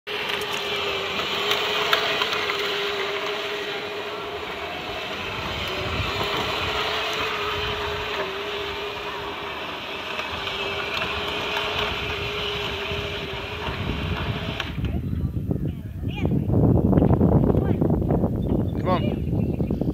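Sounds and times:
electric motor whine: 0.1 - 15.5
plastic wheels rolling on asphalt: 0.1 - 15.5.

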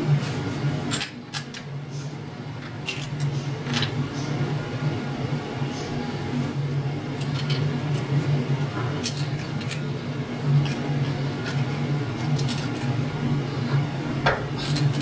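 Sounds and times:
low machine hum: 0.0 - 15.0
metal parts clinking: 12.2 - 13.0, 14.6 - 15.0.

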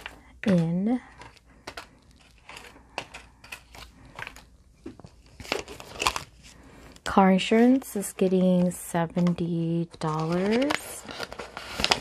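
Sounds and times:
plastic envelope crinkling: 0.0 - 6.5, 8.4 - 12.0
paper bills rustling: 9.9 - 12.0.

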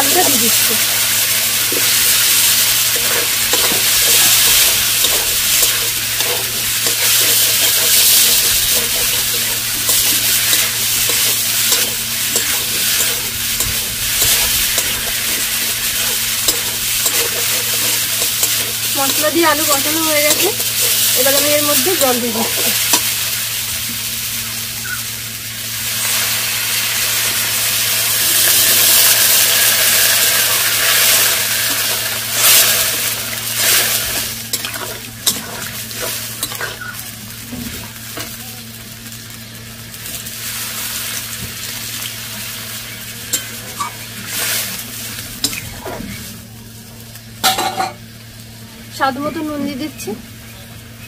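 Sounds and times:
water sizzling in a hot pan: 0.0 - 50.4
metal spatula scraping a pan: 1.7 - 23.1.

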